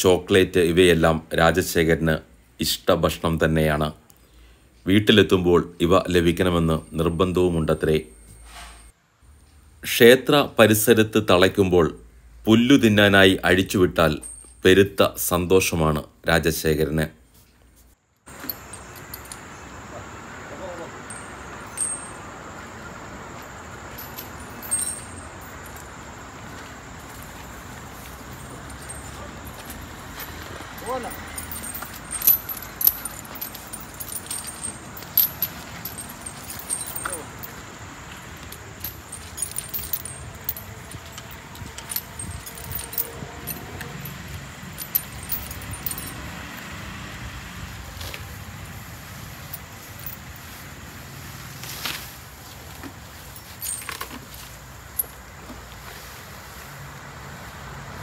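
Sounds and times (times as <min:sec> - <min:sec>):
background hiss: 0:00.0 - 0:58.0
leg chains clinking: 0:12.7 - 0:15.3, 0:18.2 - 0:46.8, 0:49.3 - 0:50.6, 0:51.6 - 0:55.4.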